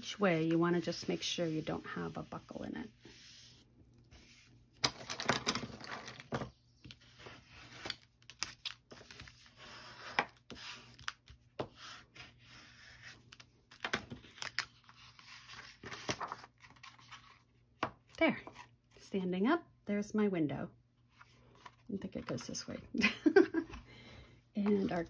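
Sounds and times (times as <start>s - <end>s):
paper card rustling and scraping: 0.0s - 17.5s.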